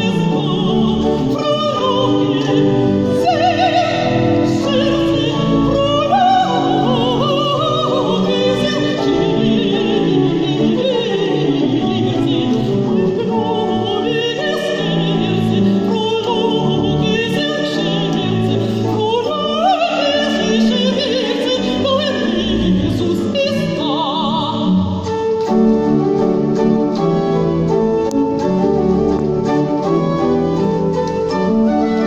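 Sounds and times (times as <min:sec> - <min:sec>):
woman singing operatically: 0:00.0 - 0:25.1.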